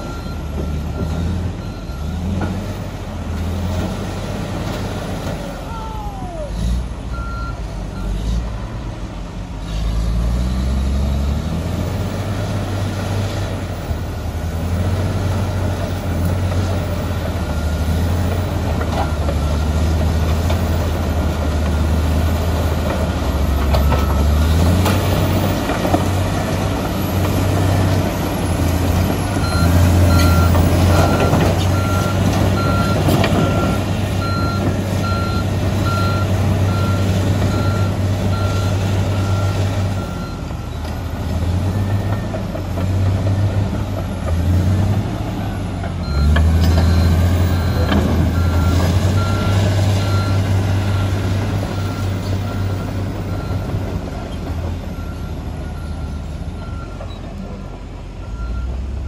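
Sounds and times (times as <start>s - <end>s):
reversing alarm beeping: 0.0s - 2.3s, 7.1s - 8.2s, 23.4s - 25.5s, 29.1s - 42.4s, 46.0s - 54.0s, 54.8s - 58.9s
bulldozer diesel engine droning: 0.0s - 59.0s.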